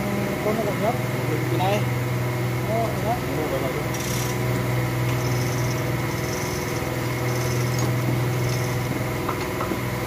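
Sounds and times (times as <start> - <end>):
motor humming: 2.9 - 10.0.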